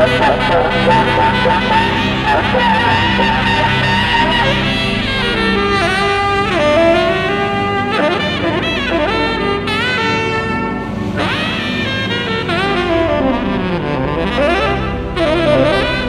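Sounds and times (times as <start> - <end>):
low synth backing: 0.0 - 16.0
tenor saxophone solo: 0.0 - 16.0.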